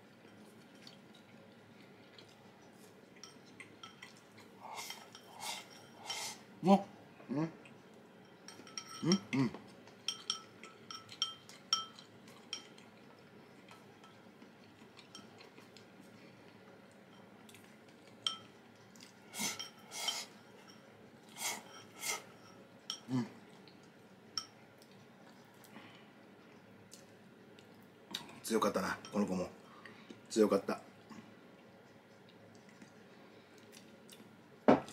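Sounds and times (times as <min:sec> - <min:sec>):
utensils clinking against dishes: 0:03.2 - 0:06.4, 0:08.2 - 0:15.7, 0:18.0 - 0:23.1, 0:28.6 - 0:29.8.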